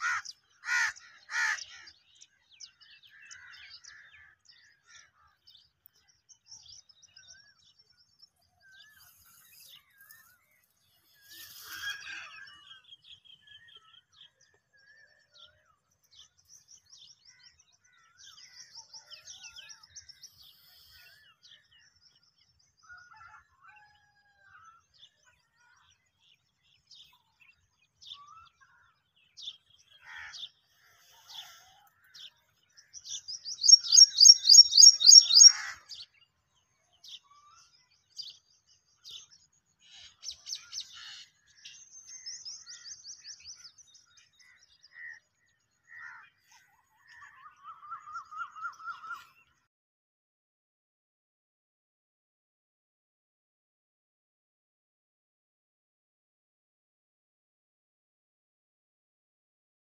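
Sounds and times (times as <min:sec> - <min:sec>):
small birds chirping: 0:00.0 - 0:23.0, 0:25.2 - 0:49.6
bird trills: 0:33.0 - 0:35.9.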